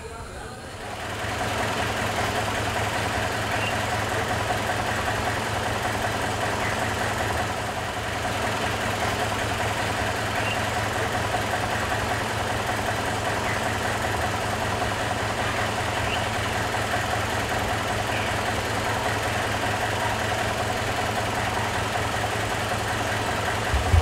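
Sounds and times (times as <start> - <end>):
steady mechanical drone: 22.3 - 24.0.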